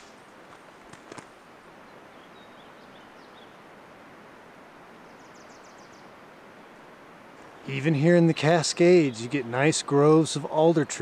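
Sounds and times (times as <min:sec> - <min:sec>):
footsteps on rocky trail: 0:00.0 - 0:01.4
faint outdoor hiss: 0:00.0 - 0:11.0.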